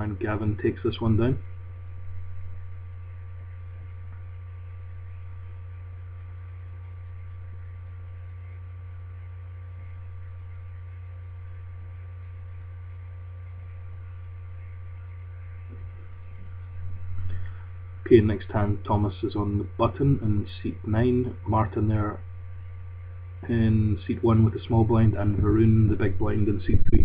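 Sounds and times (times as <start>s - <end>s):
faint background hiss: 0.0s - 27.0s
low electrical hum: 0.0s - 27.0s.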